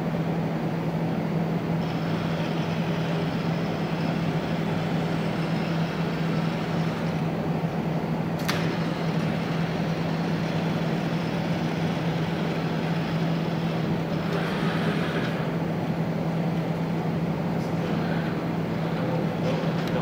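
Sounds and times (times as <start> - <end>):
machine hum: 0.0 - 20.0
sharp click: 8.4 - 8.8.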